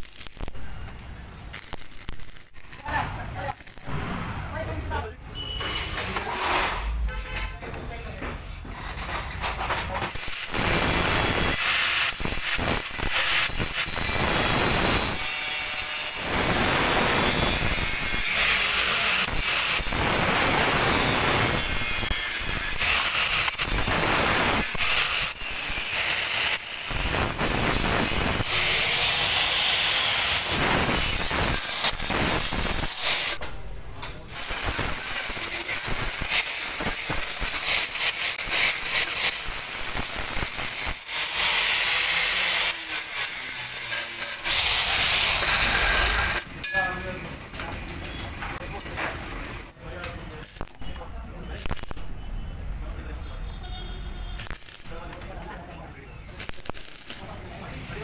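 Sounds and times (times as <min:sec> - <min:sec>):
angle grinder grinding steel: 0:10.1 - 0:33.4, 0:34.3 - 0:47.1, 0:56.4 - 0:57.4.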